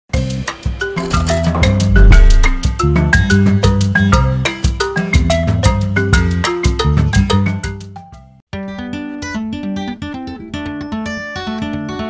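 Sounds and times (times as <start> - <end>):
upbeat percussive music with bassline: 0.5 - 7.8.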